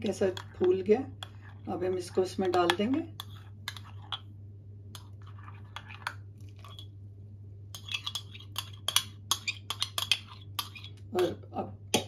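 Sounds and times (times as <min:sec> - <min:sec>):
steady low hum: 0:00.0 - 0:12.0
metal spoon scraping a china cup: 0:00.2 - 0:04.2, 0:05.0 - 0:06.9, 0:07.7 - 0:11.0.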